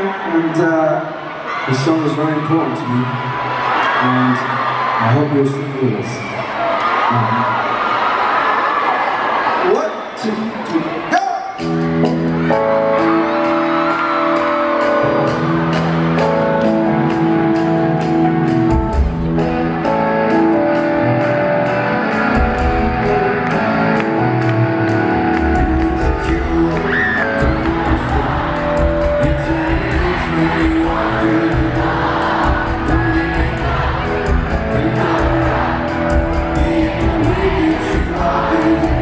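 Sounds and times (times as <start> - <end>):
electric guitar and keyboard chords: 11.5 - 39.0.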